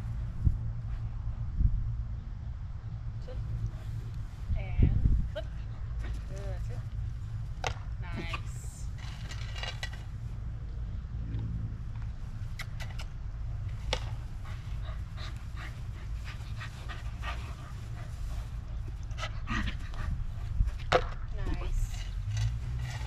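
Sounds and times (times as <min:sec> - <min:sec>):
low rumble: 0:00.0 - 0:23.0
dog panting: 0:05.4 - 0:07.2, 0:13.7 - 0:21.0.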